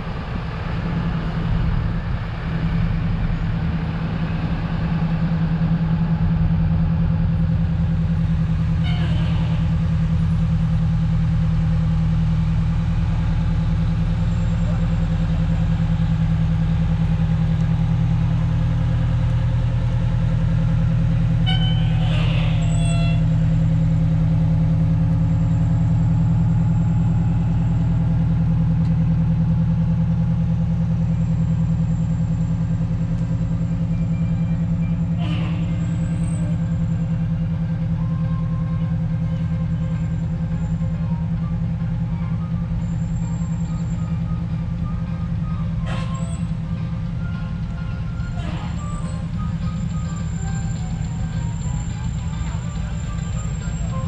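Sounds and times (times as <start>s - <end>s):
truck engines rolling past: 0.0s - 54.0s
horn toots: 21.4s - 23.3s.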